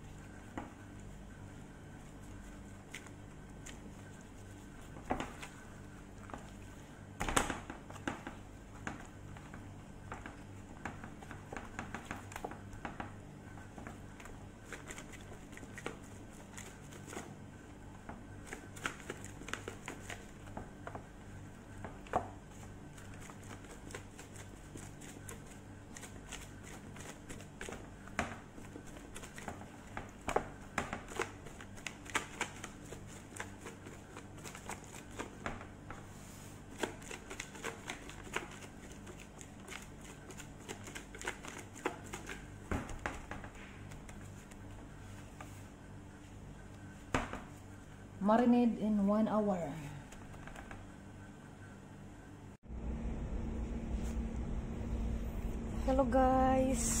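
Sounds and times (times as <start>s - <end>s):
plastic glove crinkling: 0.0s - 8.0s, 13.6s - 47.9s
steady low hum: 0.0s - 57.0s.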